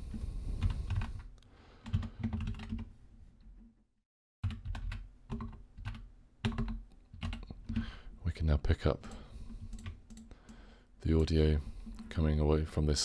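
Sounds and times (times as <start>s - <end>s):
computer keyboard typing: 0.6s - 2.9s, 4.4s - 7.9s, 9.5s - 10.3s.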